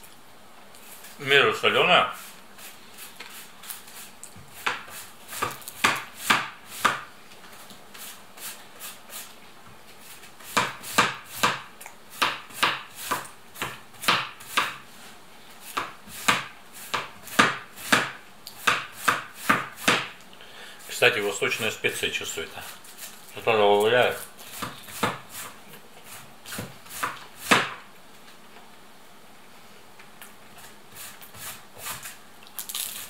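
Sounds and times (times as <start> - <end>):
knife chopping on cutting board: 4.6 - 7.1, 10.5 - 14.8, 15.7 - 20.2, 24.5 - 25.6, 26.5 - 27.8.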